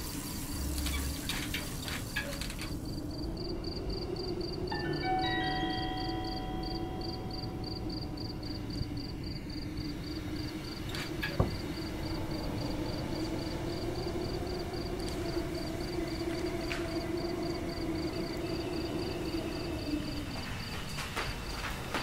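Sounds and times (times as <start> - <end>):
insect chirping: 0.0 - 22.0
ringing chord: 4.7 - 8.0.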